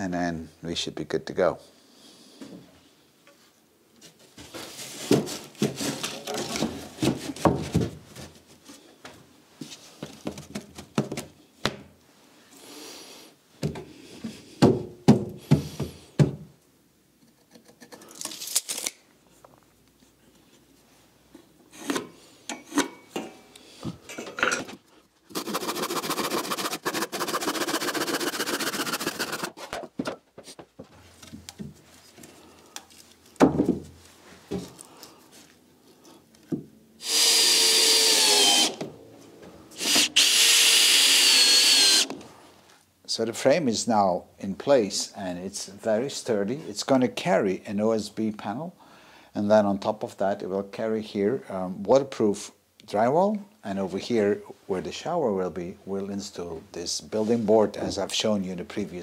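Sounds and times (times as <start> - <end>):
power tool running: 25.3 - 29.5, 37.0 - 38.8, 39.7 - 42.2.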